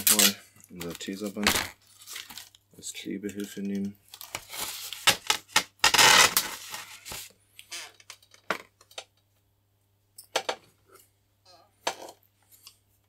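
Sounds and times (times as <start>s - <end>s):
adhesive tape ripping off roll: 4.2s - 7.3s.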